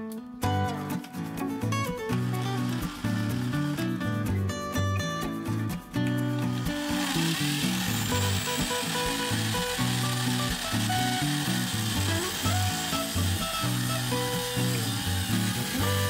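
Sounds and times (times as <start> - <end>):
background music: 0.0 - 16.0
drill press motor running: 2.1 - 4.1, 6.6 - 16.0.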